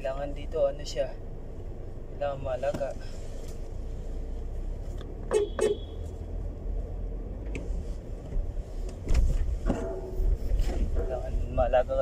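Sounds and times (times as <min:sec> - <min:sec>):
car engine rumble inside cabin: 0:00.0 - 0:12.0
low thump: 0:09.0 - 0:11.2.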